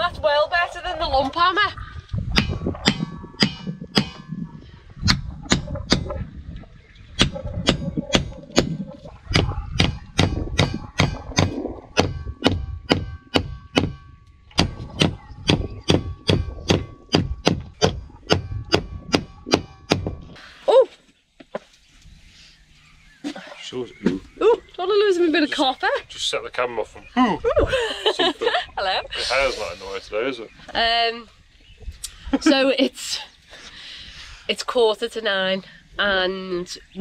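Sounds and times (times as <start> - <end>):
hammer striking nails into wood: 7.2 - 14.0.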